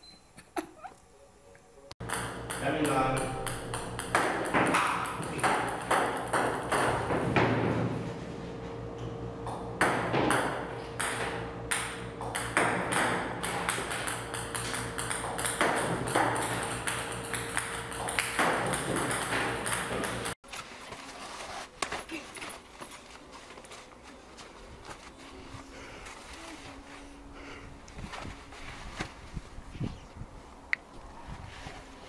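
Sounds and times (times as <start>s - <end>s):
table tennis balls bouncing: 2.0s - 7.9s, 9.4s - 20.4s
steady hum: 23.1s - 32.0s.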